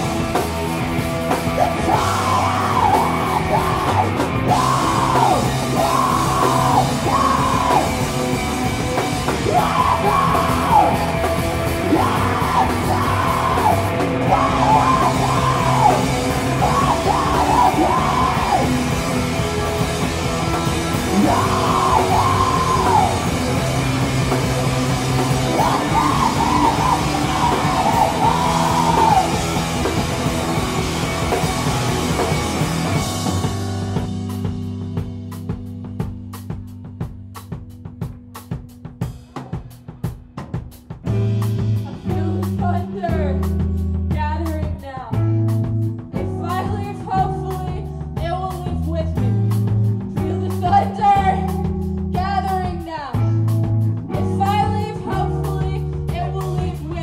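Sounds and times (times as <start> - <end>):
rock band playing live: 0.0 - 57.0
vocalist yelling: 1.4 - 8.5, 9.2 - 31.4.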